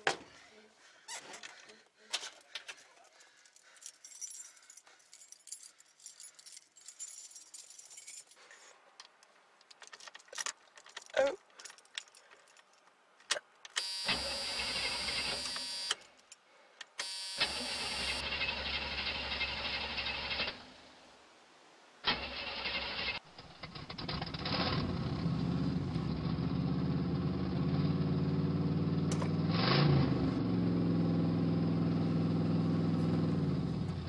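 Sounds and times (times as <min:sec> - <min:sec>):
car keys jangling: 0:02.2 - 0:08.5, 0:09.7 - 0:13.4
starter cranking engine: 0:22.1 - 0:25.3.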